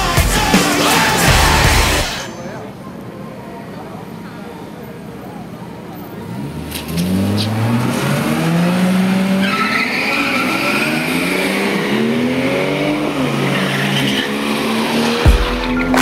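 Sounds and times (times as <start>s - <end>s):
car engine revving high: 6.2s - 16.0s
tyres squealing: 9.0s - 11.9s.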